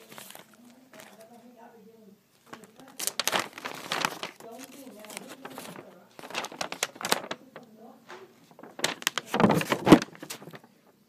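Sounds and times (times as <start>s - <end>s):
package crackling being opened: 0.0s - 1.4s, 2.4s - 10.7s.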